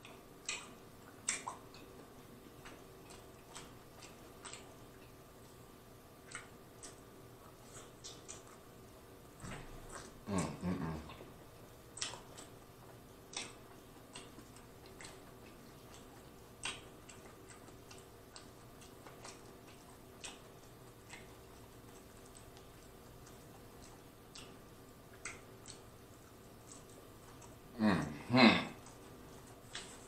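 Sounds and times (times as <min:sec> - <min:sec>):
mouth clicks and smacks eating: 0:00.0 - 0:30.0
person humming mmm: 0:10.2 - 0:11.2, 0:27.7 - 0:29.0.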